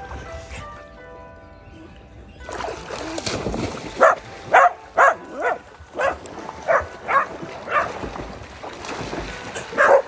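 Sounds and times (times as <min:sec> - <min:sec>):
dog barking: 0:04.0 - 0:07.9, 0:09.8 - 0:10.0.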